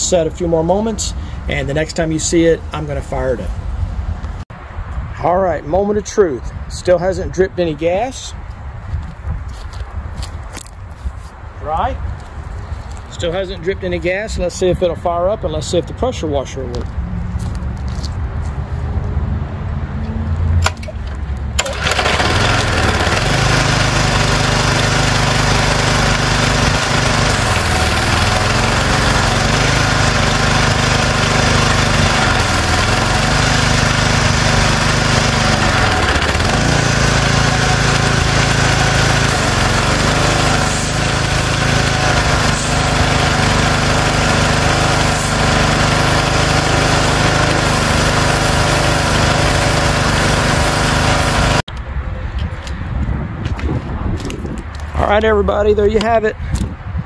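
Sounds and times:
small engine starting and running: 20.6s - 51.7s.

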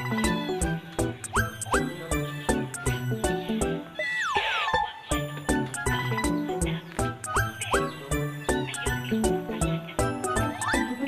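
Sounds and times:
bouncy background music: 0.0s - 11.0s.

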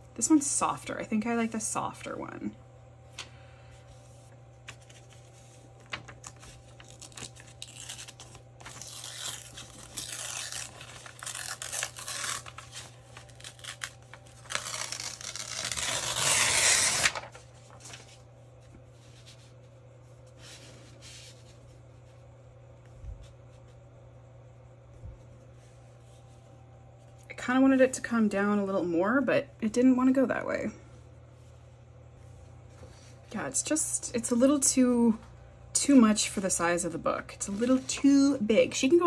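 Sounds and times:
paper tearing: 6.1s - 18.0s.

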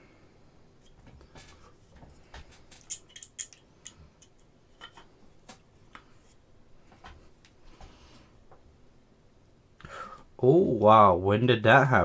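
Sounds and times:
plastic parts clicking: 2.7s - 5.1s.

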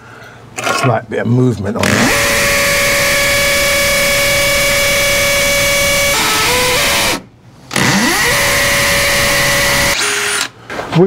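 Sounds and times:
cordless drill whining: 1.8s - 10.5s.

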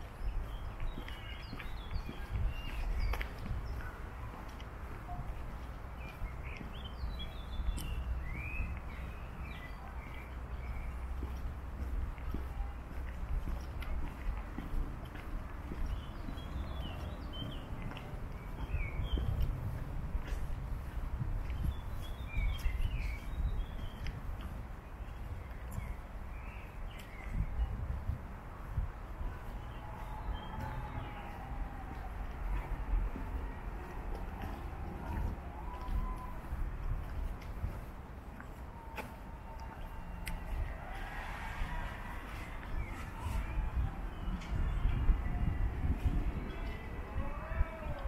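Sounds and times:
footsteps on gravel: 0.0s - 27.3s, 29.2s - 41.1s
small birds chirping: 0.0s - 28.1s.

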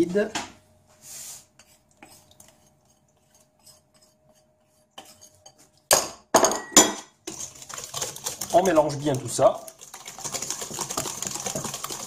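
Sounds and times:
whisk rattling in metal bowl: 1.6s - 5.8s, 7.2s - 12.0s
whisk clinking in metal bowl: 1.6s - 6.0s, 6.8s - 12.0s.

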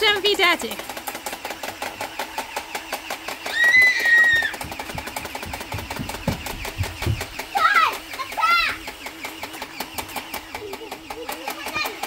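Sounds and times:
fast mechanical rattle: 0.0s - 12.0s
low thumps: 4.6s - 7.4s.

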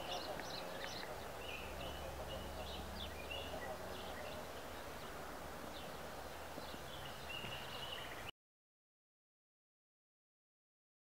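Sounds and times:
bird chirps: 0.0s - 8.3s
low hum and hiss: 0.0s - 8.3s.

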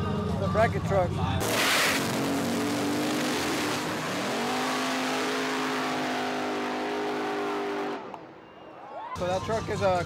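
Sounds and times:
truck engine at full throttle: 1.4s - 8.2s.

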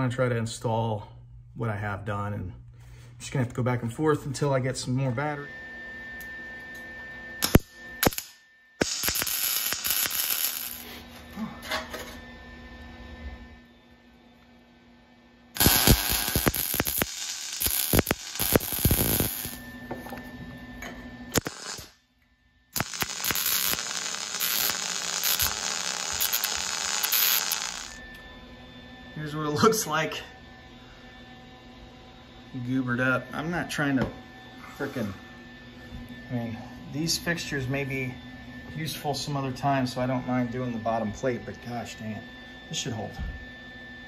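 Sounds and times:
faint steady hum: 6.1s - 29.4s
welder arc crackling: 7.4s - 11.0s, 15.6s - 19.6s, 21.3s - 22.0s, 22.8s - 28.0s.

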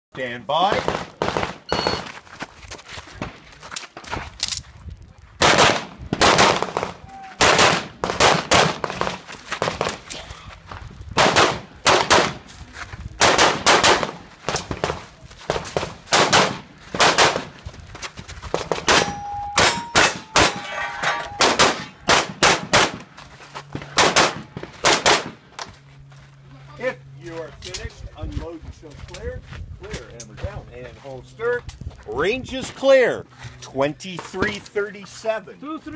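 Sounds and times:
pistol shots: 0.7s - 1.9s, 5.4s - 10.0s, 11.2s - 12.4s, 13.2s - 15.0s, 15.6s - 17.5s, 18.7s - 20.7s, 21.3s - 23.0s, 23.9s - 25.4s
bullets ringing on steel targets: 18.9s - 22.0s.

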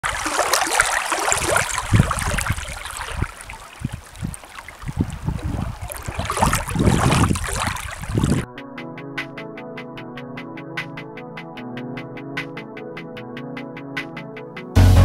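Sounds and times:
small waves lapping against rock: 0.0s - 8.4s.

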